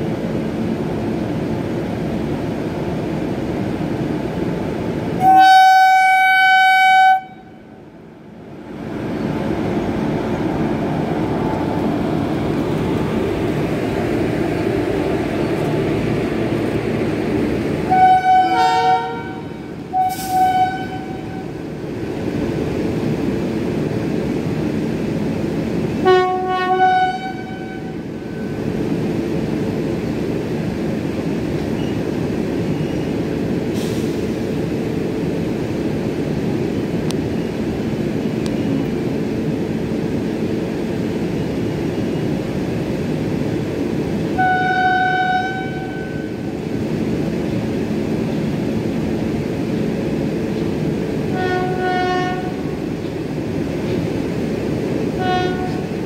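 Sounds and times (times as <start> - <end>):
train coaches rumbling past: 0.0 - 56.0
locomotive horn blasts: 5.2 - 7.7, 17.8 - 21.6, 26.0 - 28.0, 44.4 - 46.4, 51.3 - 52.6, 55.2 - 55.9.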